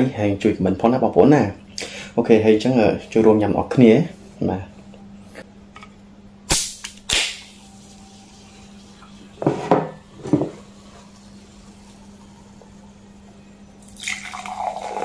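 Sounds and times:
can cracking open with hiss: 6.5s - 7.7s.

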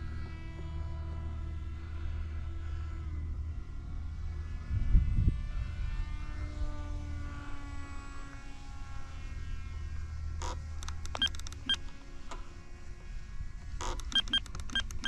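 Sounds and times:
low steady rumble: 0.0s - 15.0s
model plane motor whine: 0.0s - 15.0s
short clicks and beeps: 10.4s - 11.9s, 13.8s - 15.0s.

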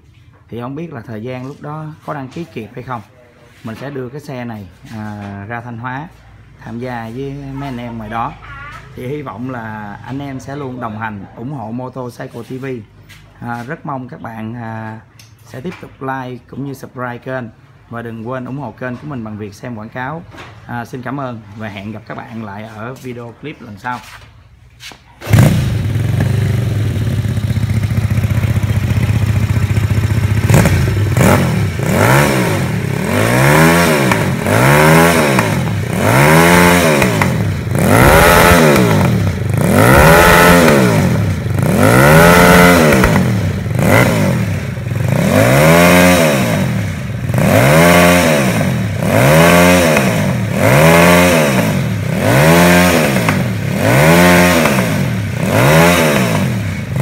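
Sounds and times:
motorcycle engine revving: 25.2s - 57.0s.

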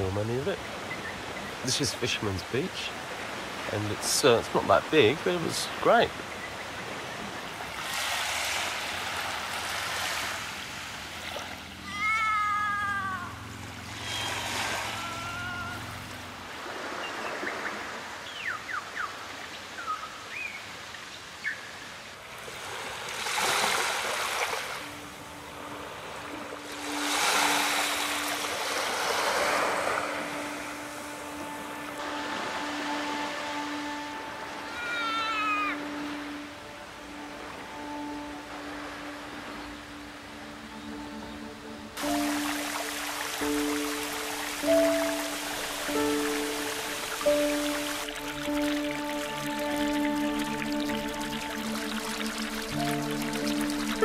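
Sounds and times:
small waves washing on sand: 0.0s - 11.8s, 12.6s - 18.2s, 22.1s - 34.8s, 42.0s - 54.0s
bird calling: 11.8s - 16.1s, 16.7s - 20.6s, 34.4s - 36.5s
bird chirps: 17.0s - 19.2s.

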